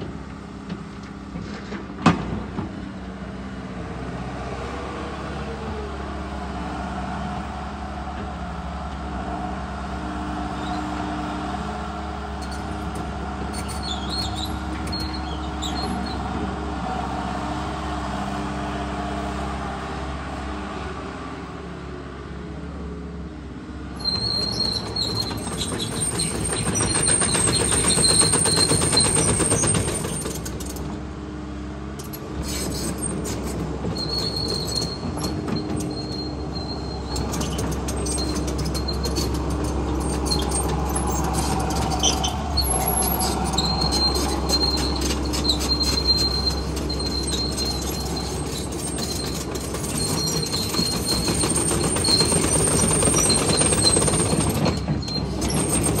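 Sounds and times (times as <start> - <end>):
excavator diesel engine running: 0.0 - 56.0
steel tracks clanking and squealing: 7.4 - 18.7, 24.0 - 31.1, 31.9 - 56.0.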